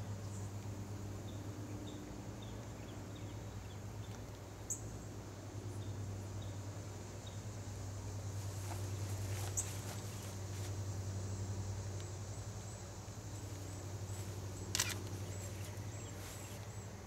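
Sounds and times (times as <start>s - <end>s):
steady low hum: 0.0s - 17.0s
sharp click: 14.7s - 15.2s.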